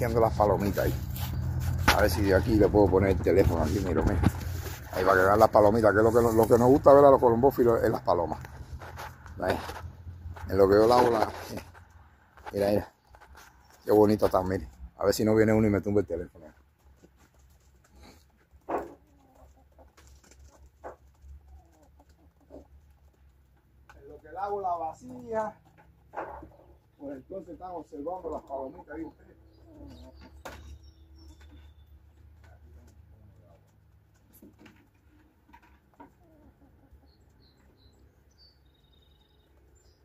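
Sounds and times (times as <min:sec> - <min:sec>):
pigeons calling: 0:00.0 - 0:14.9, 0:16.6 - 0:33.0
pigeons cooing: 0:29.1 - 0:31.4.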